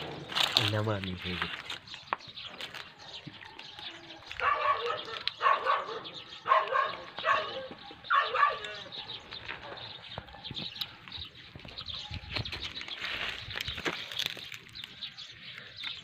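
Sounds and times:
barking animal calls: 4.2s - 11.0s.

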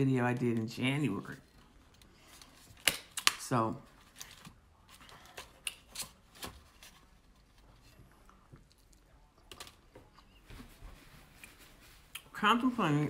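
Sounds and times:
soft chewing: 4.2s - 12.3s.

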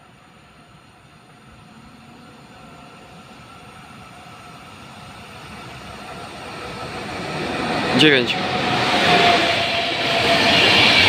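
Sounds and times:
train rumbling on rails: 0.0s - 11.0s.

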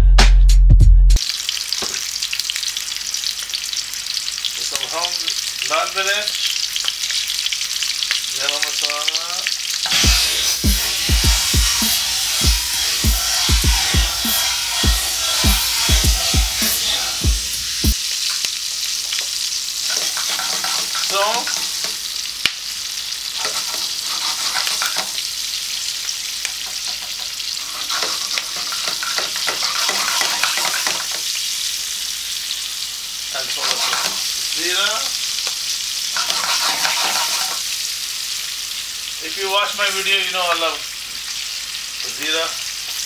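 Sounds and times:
chillies sizzling in oil: 1.2s - 43.0s
spoon stirring and knocking pan: 19.1s - 22.1s, 23.4s - 25.3s, 26.4s - 31.3s, 33.6s - 34.3s, 35.4s - 37.6s.

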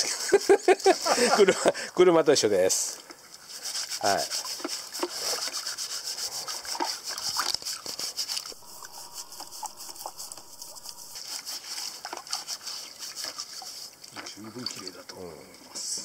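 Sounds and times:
brush scrubbing wet potato: 3.4s - 14.2s.

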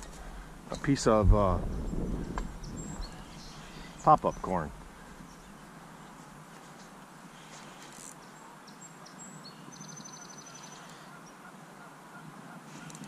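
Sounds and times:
steady low rush: 0.0s - 5.8s
short high bird calls: 9.7s - 13.0s.

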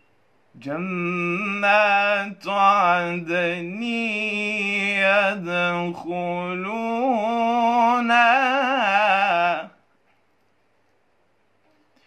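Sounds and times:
man reciting melodically: 0.6s - 9.8s.

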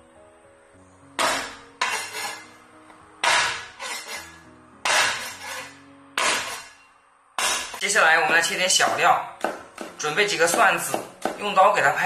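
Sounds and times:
soft background music: 0.0s - 12.0s
cleaver whacking on cutting board: 6.2s - 6.6s.

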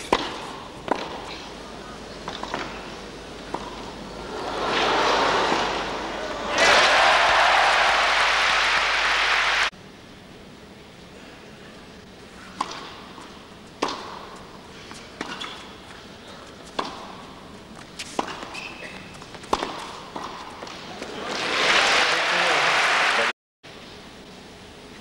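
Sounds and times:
tennis racket striking ball: 0.0s - 1.3s, 3.5s - 4.0s, 12.6s - 13.1s, 13.8s - 14.4s, 16.7s - 17.2s, 18.0s - 20.8s
crowd applause: 4.2s - 9.7s, 21.0s - 23.3s.

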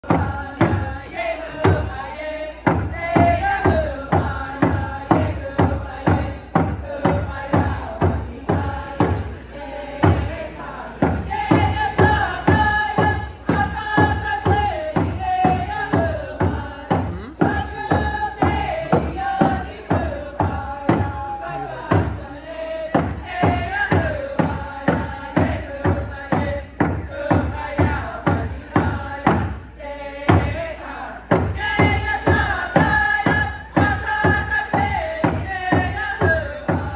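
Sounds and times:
chorus chanting in unison: 0.0s - 36.9s
hand drum beat: 2.6s - 9.4s, 10.0s - 22.2s.

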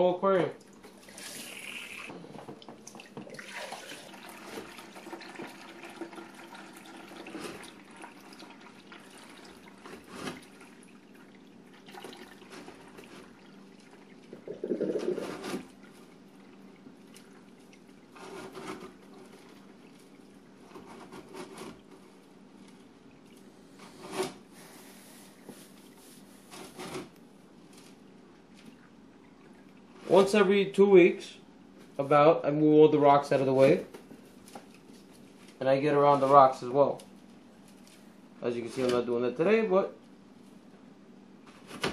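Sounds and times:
water running through hose: 0.8s - 2.3s.

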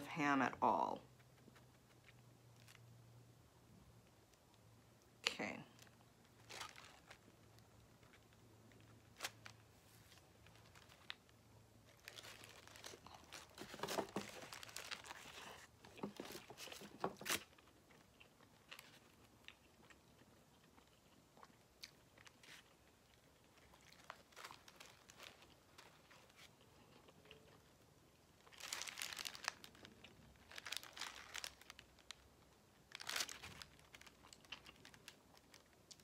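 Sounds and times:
paper wrapper crinkling: 5.8s - 17.8s, 23.4s - 26.5s, 28.4s - 36.0s.

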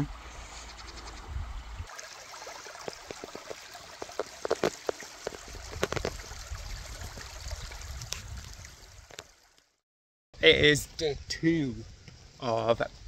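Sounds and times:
stream trickling over stones: 0.0s - 9.8s
water splashes: 1.8s - 9.8s.

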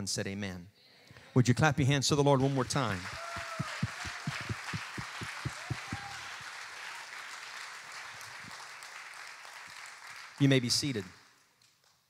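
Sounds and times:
congregation applauding: 2.3s - 11.4s
low thumps: 3.1s - 6.1s.

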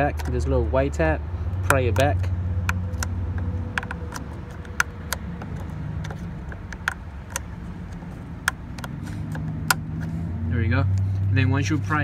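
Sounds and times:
screwdriver clicking on plastic: 0.0s - 0.4s, 1.6s - 10.1s.

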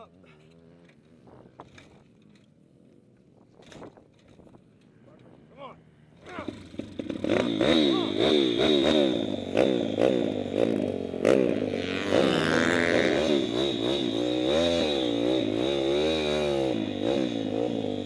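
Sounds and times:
pit bike engine revving: 0.0s - 2.1s, 6.0s - 18.0s.

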